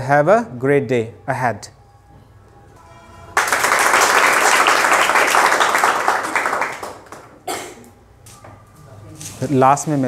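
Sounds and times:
students applauding: 0:03.4 - 0:07.4.

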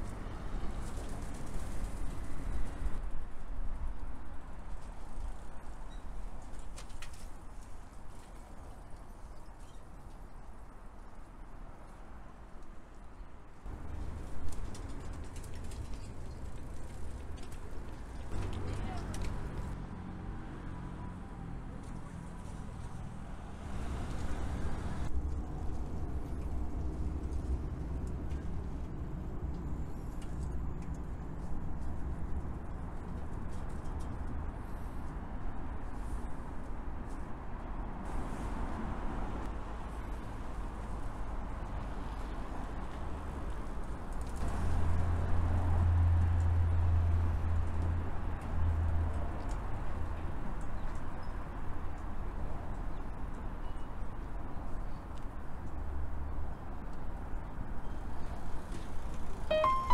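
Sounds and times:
low traffic rumble: 0:10.2 - 0:59.9
light traffic hiss: 0:21.8 - 0:59.9.

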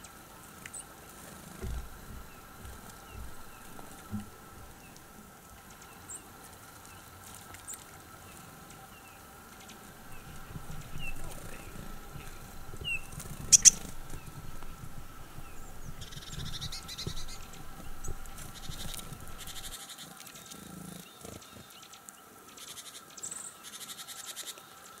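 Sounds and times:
small birds trilling: 0:00.0 - 0:25.0
sharp knocks: 0:01.6 - 0:04.8.

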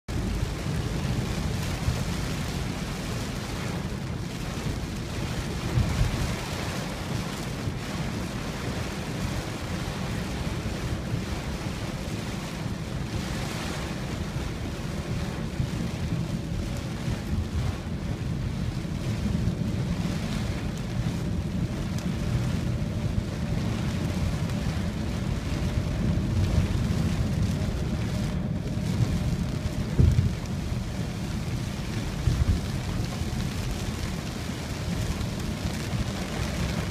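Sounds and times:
car rumbling on flooded road: 0:00.1 - 0:36.9
heavy rain on car roof: 0:00.1 - 0:36.9
low thumps: 0:29.9 - 0:30.4.

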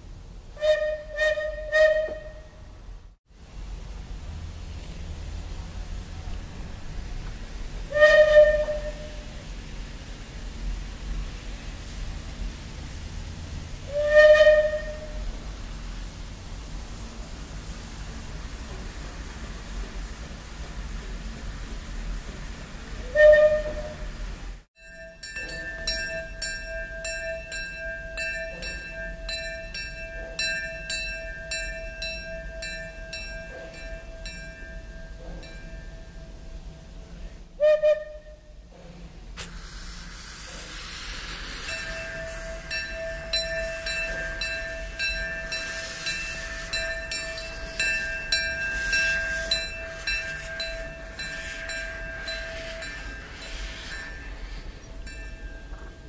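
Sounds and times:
steam whistle blast: 0:00.6 - 0:02.7, 0:07.9 - 0:09.4, 0:13.9 - 0:15.3, 0:23.0 - 0:24.2, 0:37.6 - 0:38.6, 0:40.5 - 0:54.6
steam hissing: 0:05.1 - 0:24.7, 0:38.9 - 0:56.0
locomotive bell ringing: 0:24.8 - 0:37.2, 0:41.5 - 0:56.0.

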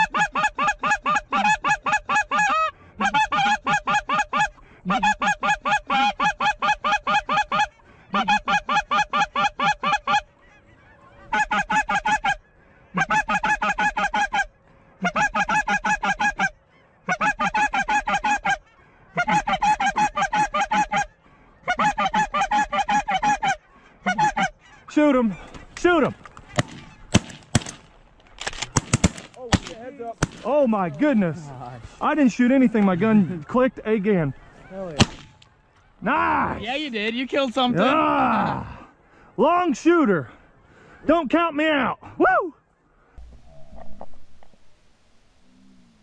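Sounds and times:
goose honking: 0:00.0 - 0:36.2.

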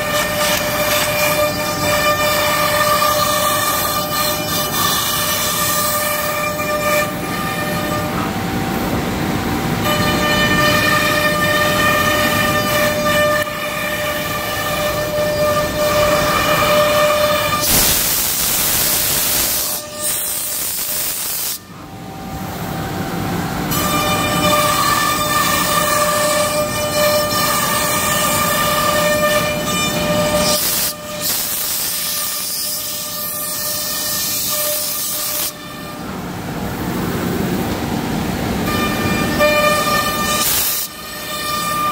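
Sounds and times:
loud rushing noise: 0:00.0 - 0:26.2.

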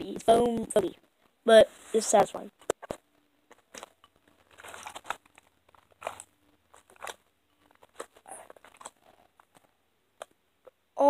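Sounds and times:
slime squelching and crackling: 0:02.6 - 0:10.4.

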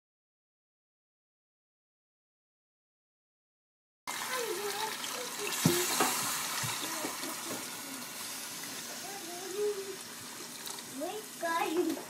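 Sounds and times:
water pouring into pot: 0:04.1 - 0:12.0.

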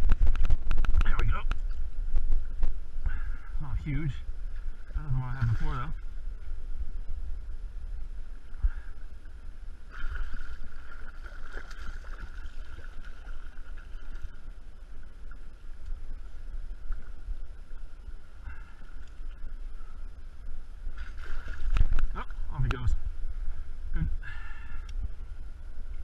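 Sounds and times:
wind rumble on microphone: 0:00.0 - 0:26.0
water lapping: 0:09.8 - 0:14.6.

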